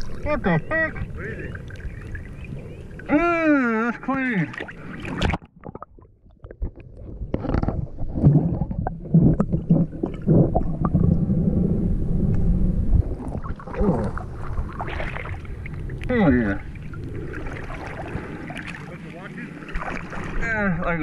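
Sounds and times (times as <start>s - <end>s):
underwater rumbling with bubbling: 0.0s - 3.2s, 4.0s - 21.0s
splash into water: 4.4s - 5.5s, 13.2s - 15.5s, 17.2s - 19.0s, 19.6s - 20.5s.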